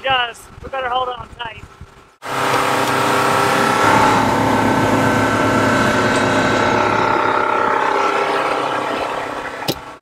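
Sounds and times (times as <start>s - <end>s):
wind: 0.0s - 10.0s
outboard motor running: 2.2s - 10.0s.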